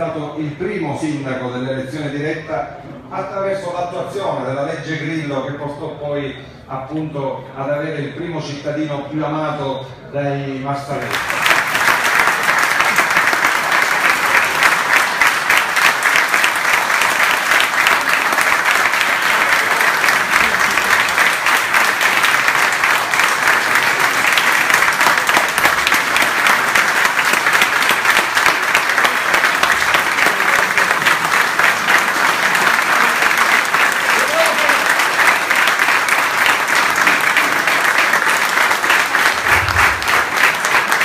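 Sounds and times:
audience applauding: 0:11.0 - 0:41.0.

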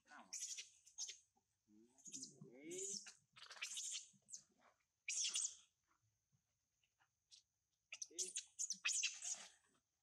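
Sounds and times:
animal chirps and squeaks: 0:00.2 - 0:01.2, 0:02.0 - 0:04.5, 0:05.1 - 0:05.6, 0:07.3 - 0:09.6.

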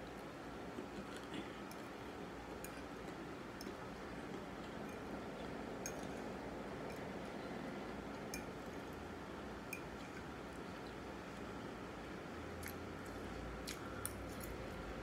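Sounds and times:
wet chewing: 0:12.6 - 0:14.7.

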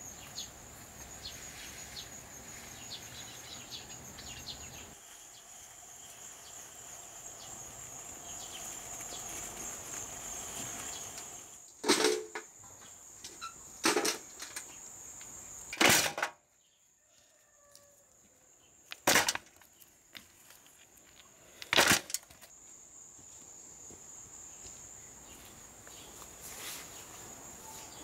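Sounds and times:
crickets chirring: 0:00.0 - 0:28.0
stones clanking into metal bucket: 0:11.8 - 0:12.5, 0:13.8 - 0:14.7, 0:15.8 - 0:16.4, 0:18.9 - 0:19.7, 0:21.6 - 0:22.4.

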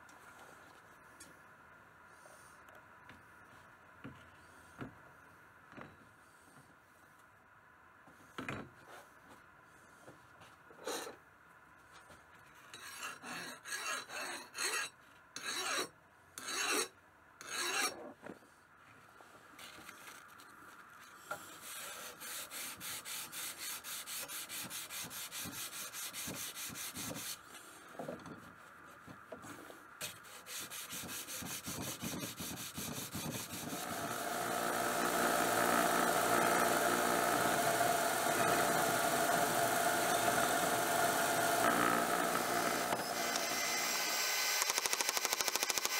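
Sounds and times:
hand file rasping on steel blade: 0:12.7 - 0:18.0, 0:21.6 - 0:27.4, 0:30.0 - 0:33.9
bench belt sander running: 0:33.4 - 0:45.9.

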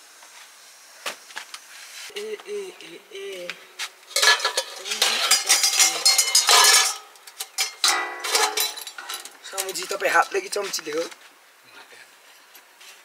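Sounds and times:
metal dishes and spoons clattering: 0:04.1 - 0:09.8.

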